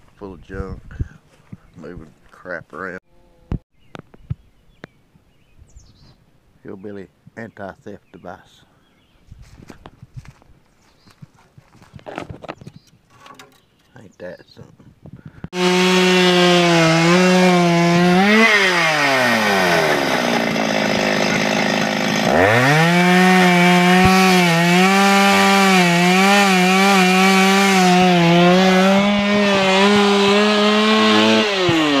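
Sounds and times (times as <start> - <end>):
chainsaw cutting wood: 15.5 - 32.0.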